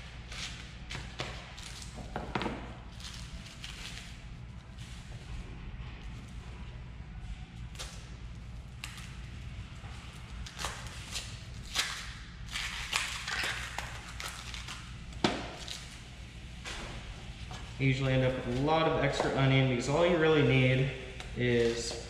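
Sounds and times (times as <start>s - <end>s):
low room hum: 0.0s - 22.0s
onion skin crackling and rustling: 2.9s - 5.2s, 7.7s - 16.0s.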